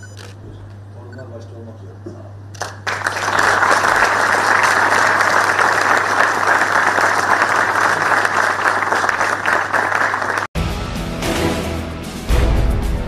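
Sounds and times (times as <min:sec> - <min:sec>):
audience applauding: 0:02.6 - 0:10.5.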